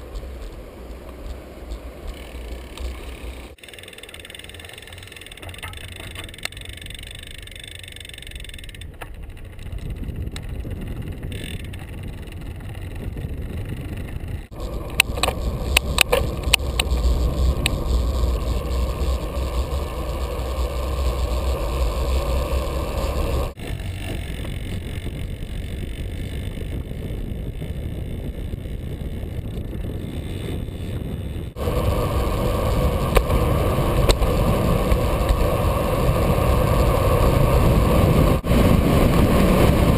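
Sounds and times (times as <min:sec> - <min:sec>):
sharp clicks and rattles: 0:00.0 - 0:31.6
bicycle tyres on paved road: 0:00.0 - 0:39.9
wind rumbling on microphone: 0:08.6 - 0:39.9.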